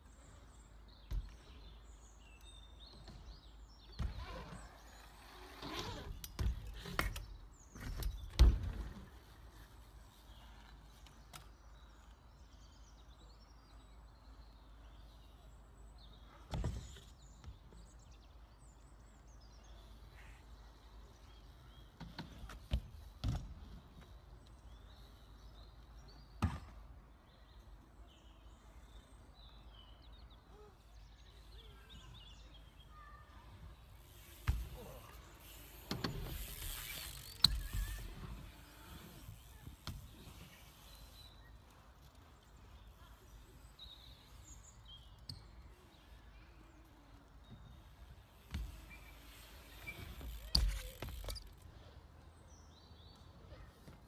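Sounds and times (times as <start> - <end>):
birds chirping faintly: 0.0 - 54.0
bike tyres rolling on concrete: 2.8 - 12.8, 33.5 - 46.2, 46.8 - 51.9
bike landing thuds: 6.1 - 9.1, 22.0 - 23.9, 26.4 - 26.9, 34.3 - 38.4.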